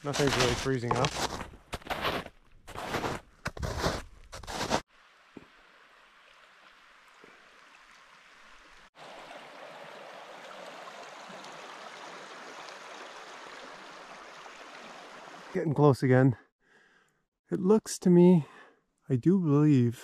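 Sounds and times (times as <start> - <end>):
river water rushing: 9.0 - 15.6.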